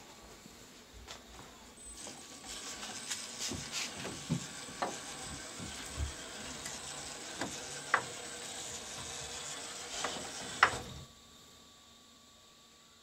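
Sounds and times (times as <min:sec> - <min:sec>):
electric motor whirring: 0:01.8 - 0:11.1.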